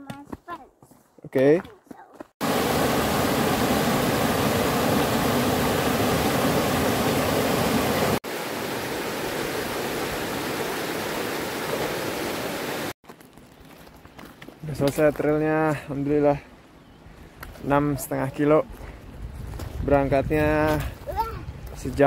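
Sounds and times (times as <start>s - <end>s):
creek water rushing over rocks: 2.4s - 13.0s.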